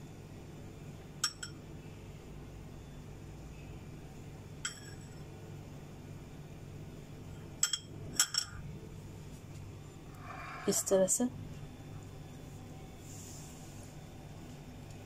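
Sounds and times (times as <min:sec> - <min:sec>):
faint steady hum: 0:00.0 - 0:15.0
metal spoon clinking on dish: 0:01.2 - 0:01.6, 0:04.6 - 0:05.2, 0:07.6 - 0:08.6.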